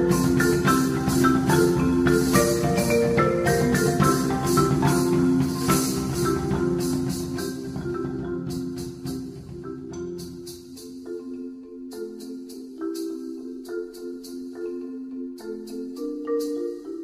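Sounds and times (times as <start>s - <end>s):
percussive beat: 0.0s - 11.2s.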